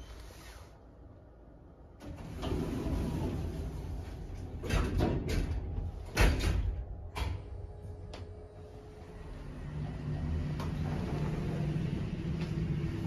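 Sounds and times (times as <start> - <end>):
elevator sliding doors rumbling: 1.9 - 13.0.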